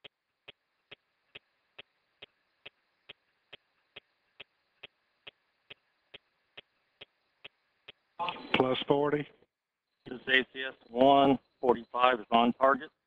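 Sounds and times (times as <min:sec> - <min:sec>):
faint regular ticking: 0:00.0 - 0:08.9
low radio hiss: 0:00.0 - 0:09.3, 0:10.0 - 0:13.0.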